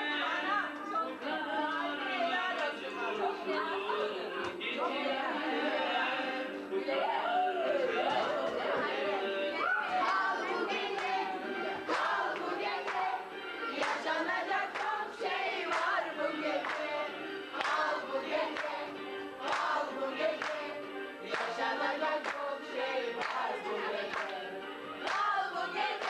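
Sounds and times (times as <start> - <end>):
group singing: 0.0 - 26.0
hands clapping in rhythm: 1.7 - 3.3, 4.4 - 4.6, 7.8 - 8.9, 9.8 - 26.0.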